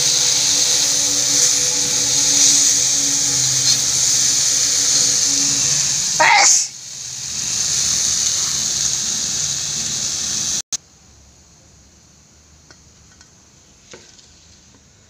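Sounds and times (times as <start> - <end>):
vegetables sizzling in oil: 0.0 - 10.6, 12.6 - 15.0.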